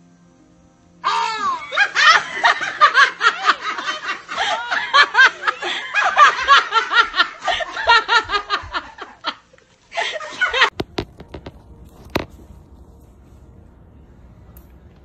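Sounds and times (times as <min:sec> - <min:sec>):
loud high-pitched laughter: 0:01.0 - 0:09.4.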